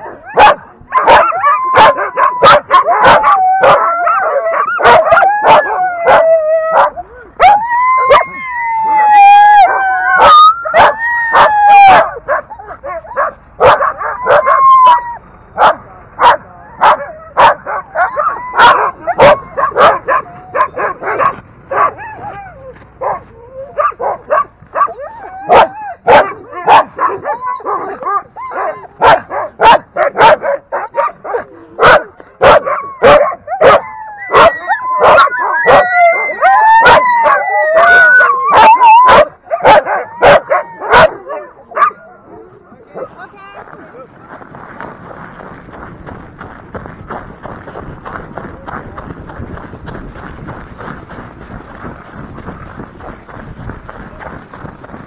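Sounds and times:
dogs howling and whining: 0.0s - 15.2s, 16.3s - 43.1s
sled dogs barking: 0.0s - 43.8s.

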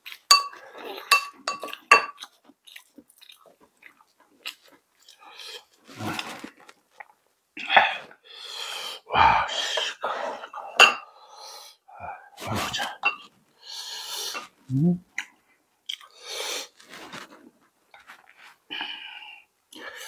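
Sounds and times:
chewing and slurping: 0.0s - 7.2s
sharp breaths through nose: 13.6s - 14.5s, 16.1s - 17.0s.

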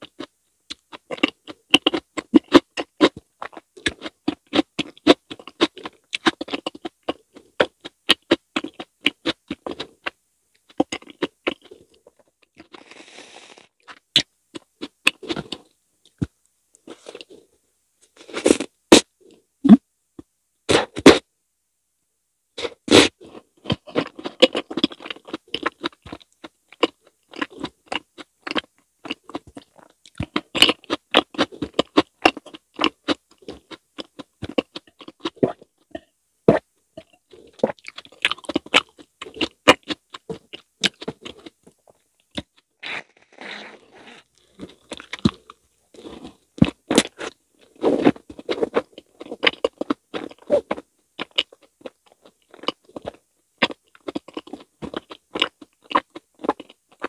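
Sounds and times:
close chewing with wet smacking: 23.6s - 42.7s, 44.6s - 57.0s.

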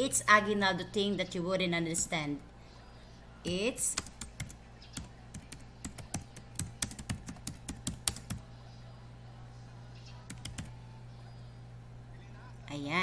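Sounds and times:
steady low hum: 0.0s - 13.0s
computer keyboard typing: 3.9s - 8.4s, 10.3s - 10.7s.

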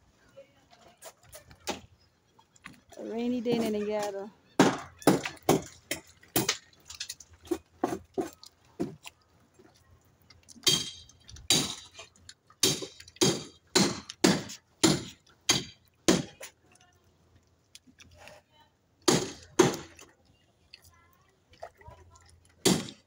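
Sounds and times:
footsteps on wooden planks: 2.6s - 9.8s.

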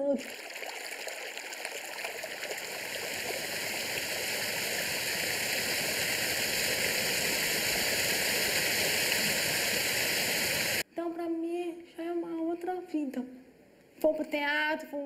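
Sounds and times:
waterfall splashing over rocks: 0.2s - 10.8s.

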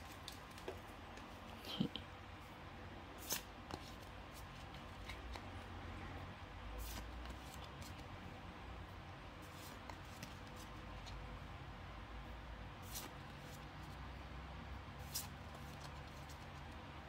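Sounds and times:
trading cards sliding and rustling: 3.1s - 5.8s, 6.7s - 8.1s, 9.4s - 11.3s, 12.8s - 14.0s, 15.0s - 16.8s.

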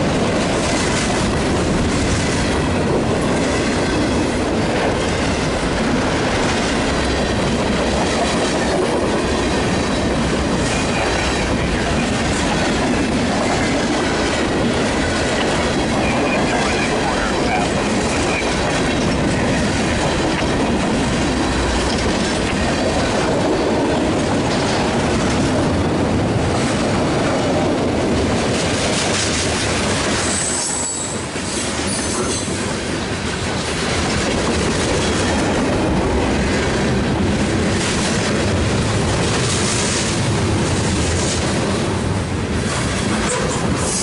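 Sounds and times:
freight train wheels clattering: 0.0s - 44.0s
wheel squeal: 30.3s - 32.5s.

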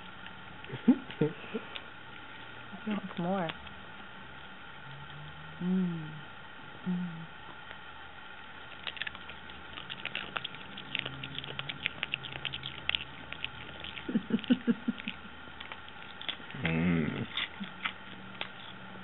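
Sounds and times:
dog chewing crunchy chips: 8.6s - 16.6s, 17.2s - 18.8s.

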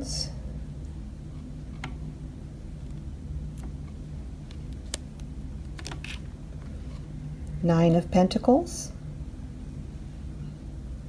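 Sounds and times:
low room hum: 0.0s - 11.0s
cards clicking: 4.5s - 6.2s.

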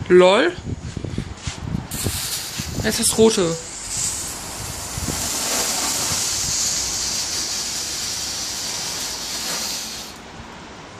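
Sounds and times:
bengal light hissing: 1.9s - 10.3s.

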